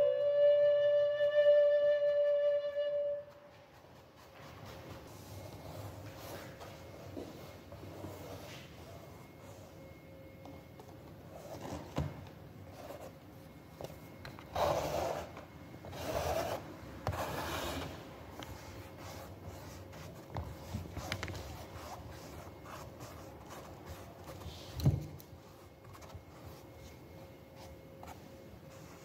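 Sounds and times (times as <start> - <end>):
paintbrush scraping on canvas: 3.6 - 9.7, 14.5 - 24.8.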